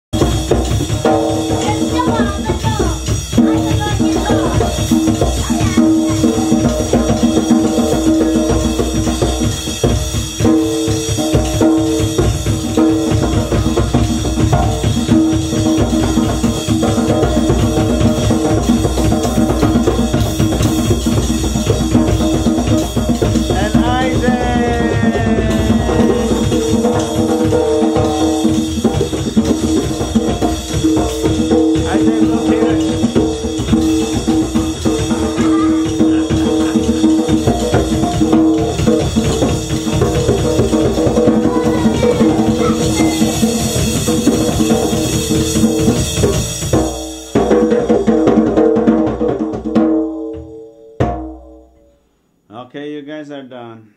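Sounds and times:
drum kit fast rhythm: 0.1 - 51.6
hands slapping djembe: 10.5 - 46.9.

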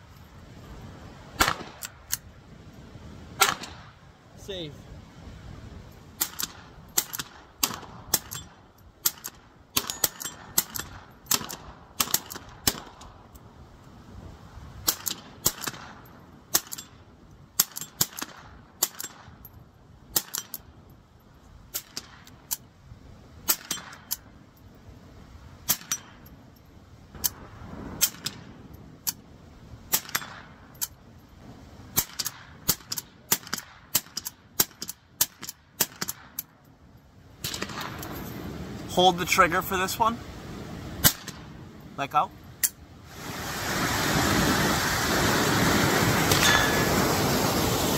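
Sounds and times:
rifle shots: 1.4 - 1.9, 3.4 - 3.9.

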